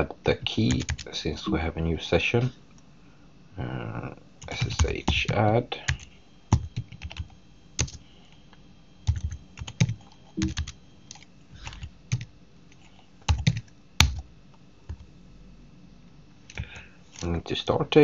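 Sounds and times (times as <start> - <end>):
typing on a keyboard: 0.7 - 1.0, 4.4 - 8.0, 9.1 - 14.2.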